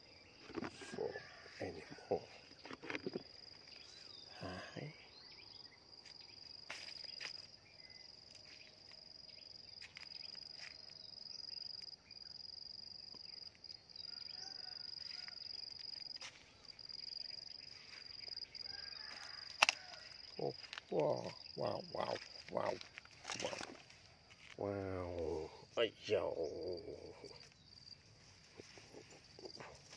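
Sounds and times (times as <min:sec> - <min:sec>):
footsteps through dry grass: 0:06.0 - 0:07.5, 0:16.1 - 0:16.6, 0:18.9 - 0:21.3, 0:21.9 - 0:24.6
sharp twig snap: 0:19.5 - 0:19.8.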